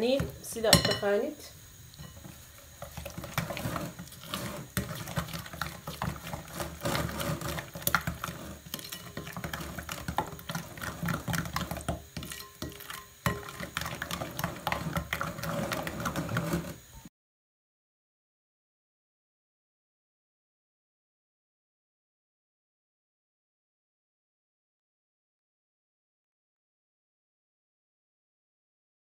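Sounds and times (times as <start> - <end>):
utensil beating batter in glass bowl: 1.9 - 16.8.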